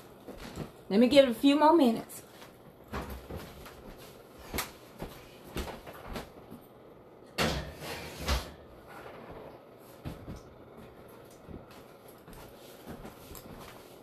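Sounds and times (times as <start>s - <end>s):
oven door clunks: 7.4s - 8.6s.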